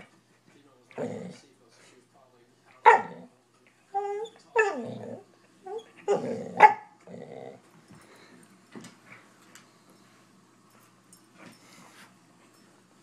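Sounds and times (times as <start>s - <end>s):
dog barking: 2.8s - 3.3s, 6.1s - 7.0s
dog whining yelp: 4.0s - 6.8s.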